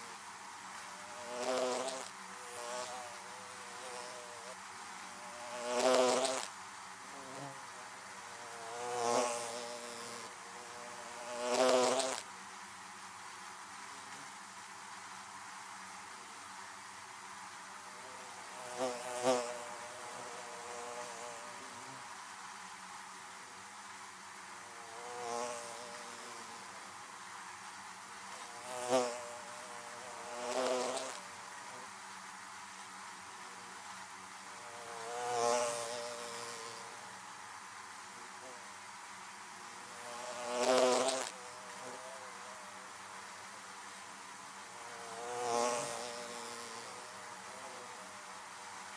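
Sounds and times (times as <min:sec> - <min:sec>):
honeybees buzzing: 0:00.9 - 0:06.5, 0:07.1 - 0:12.2, 0:40.0 - 0:42.2.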